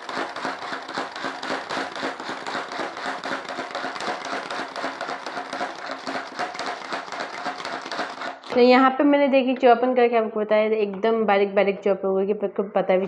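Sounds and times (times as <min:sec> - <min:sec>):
vegetable chopper clicking and rattling: 0:00.0 - 0:08.6.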